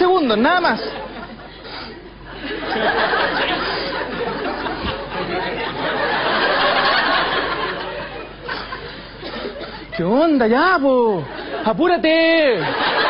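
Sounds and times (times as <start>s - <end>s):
audience laughing: 0.2s - 10.2s, 11.1s - 13.0s.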